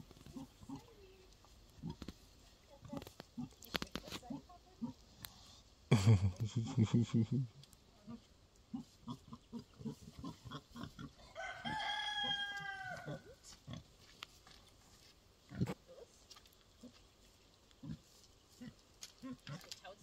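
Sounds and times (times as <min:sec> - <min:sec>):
rooster crowing: 0:11.3 - 0:13.2
pig grunting: 0:15.5 - 0:15.9.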